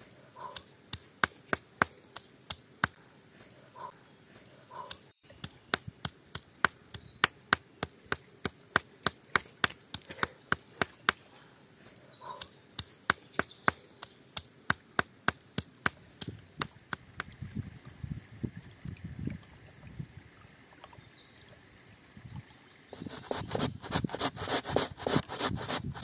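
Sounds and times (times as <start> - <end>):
stone pounding on rock: 0.5 - 3.0, 4.9 - 11.3, 12.4 - 17.3.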